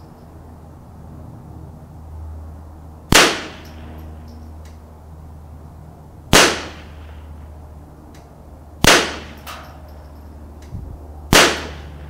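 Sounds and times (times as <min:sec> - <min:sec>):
rifle shots: 0:03.1 - 0:03.7, 0:06.3 - 0:07.0, 0:08.8 - 0:09.6, 0:11.3 - 0:11.9.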